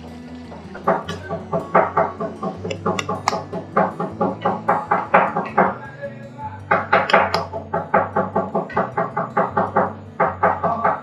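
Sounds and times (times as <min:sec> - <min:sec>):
held bass note: 0:00.0 - 0:05.9
background music with steady beat: 0:00.0 - 0:11.0.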